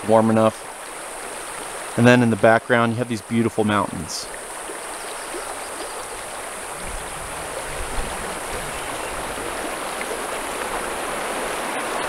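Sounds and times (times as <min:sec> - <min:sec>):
river rushing over rocks: 0:00.0 - 0:02.5, 0:04.3 - 0:12.0.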